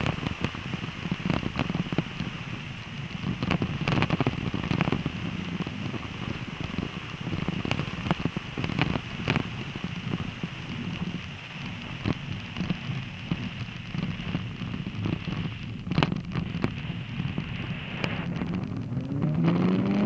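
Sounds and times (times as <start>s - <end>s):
crackling clicks and knocks: 0.0s - 20.0s
tyres rumbling on packed snow: 0.0s - 20.0s.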